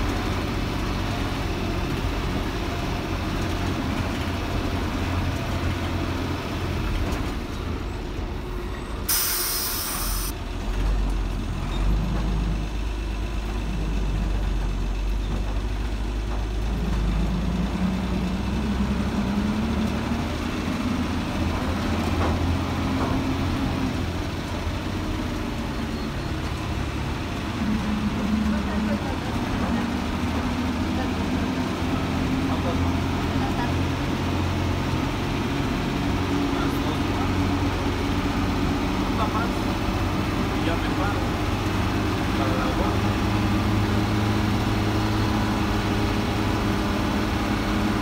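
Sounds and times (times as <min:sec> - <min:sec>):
bus diesel engine running: 0:00.0 - 0:48.0
air brake hiss: 0:09.1 - 0:10.3.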